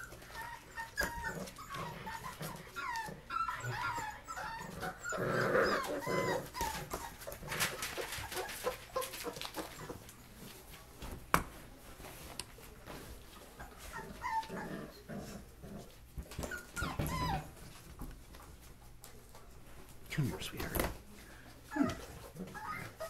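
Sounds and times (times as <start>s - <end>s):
puppies whimpering: 0.0s - 10.3s, 13.6s - 15.1s, 16.3s - 17.8s, 21.7s - 23.0s.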